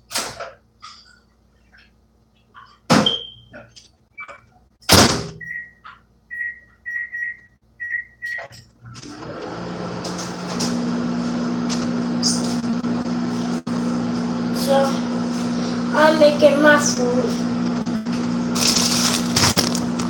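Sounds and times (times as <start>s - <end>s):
microwave fan and hum: 0.0s - 20.0s
keypad beeps: 5.4s - 8.5s.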